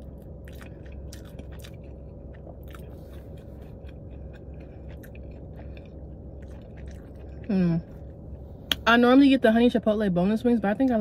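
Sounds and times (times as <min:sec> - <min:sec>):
chewing with wet mouth clicks: 0:00.0 - 0:08.8
steady low hum: 0:00.0 - 0:11.0.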